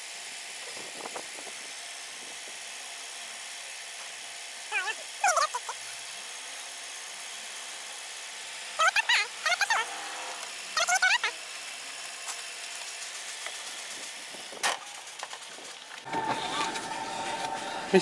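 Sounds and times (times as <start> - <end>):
squeaky wavering chirps: 4.7 - 5.8, 8.8 - 11.4.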